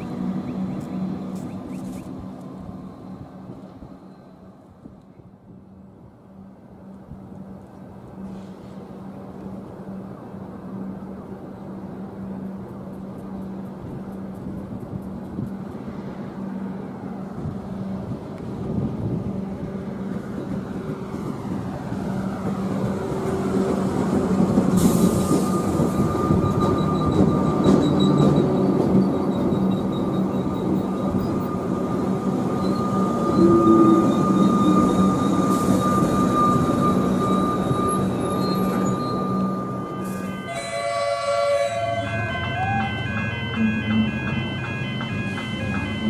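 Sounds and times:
electric train approaching: 0.0 - 46.0
train brakes squealing: 24.6 - 46.0.

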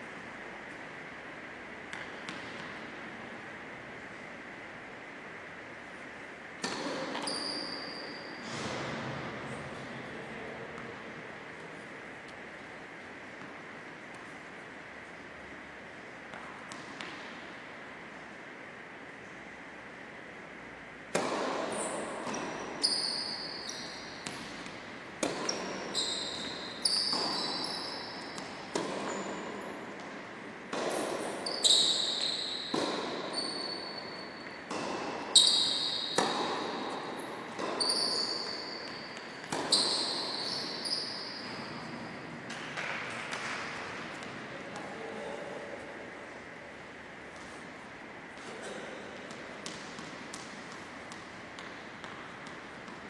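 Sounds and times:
tennis ball bouncing: 1.9 - 2.9, 6.6 - 7.3, 16.3 - 17.4, 21.1 - 22.6, 24.2 - 33.7, 34.6 - 41.8, 49.2 - 53.0
racket striking tennis ball: 6.6 - 7.3, 21.1 - 22.6, 24.2 - 33.6, 34.6 - 40.8
shoes squeaking on court: 6.6 - 8.6, 21.2 - 44.4.

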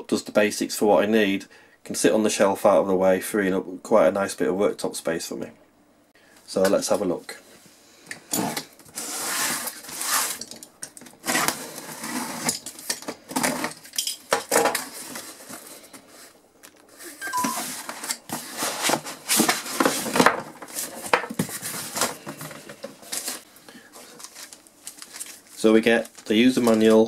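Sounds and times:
cardboard scraping and rustling: 8.4 - 10.6, 11.2 - 13.8, 14.4 - 27.0.

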